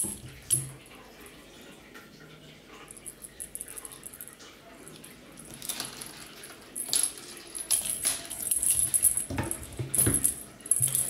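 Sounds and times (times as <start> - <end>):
cat toy jingling: 5.7 - 11.0.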